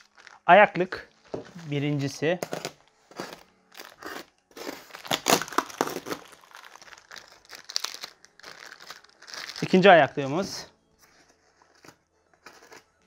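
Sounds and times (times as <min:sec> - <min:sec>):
packaging wrap crinkling and tearing: 0:00.0 - 0:00.5, 0:02.5 - 0:12.9.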